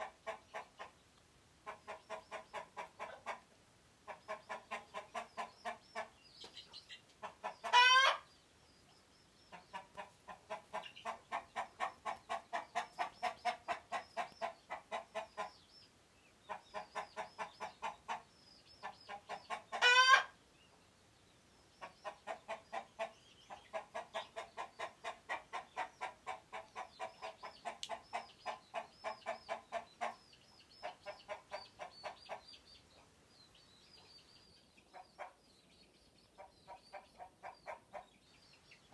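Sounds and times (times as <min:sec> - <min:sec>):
chickens clucking rapidly: 0:00.0 - 0:01.0, 0:01.6 - 0:08.4, 0:09.5 - 0:15.7, 0:16.4 - 0:20.4, 0:21.7 - 0:33.1, 0:34.5 - 0:38.9
chicken squawks: 0:07.2 - 0:08.3, 0:19.2 - 0:20.4.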